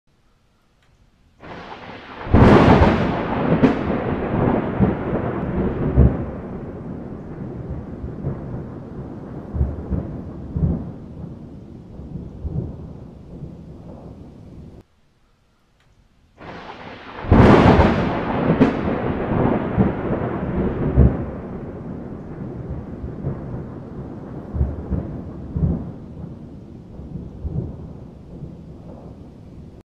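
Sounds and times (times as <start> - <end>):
thunder rumbling and cracking: 1.4 - 14.8, 16.4 - 29.8.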